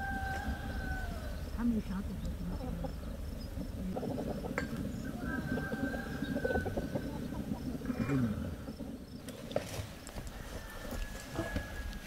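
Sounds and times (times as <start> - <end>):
rooster crowing: 0.0 - 1.5, 5.1 - 7.2, 10.2 - 12.0
low background rumble: 0.0 - 10.0
chickens clucking softly: 2.5 - 8.8.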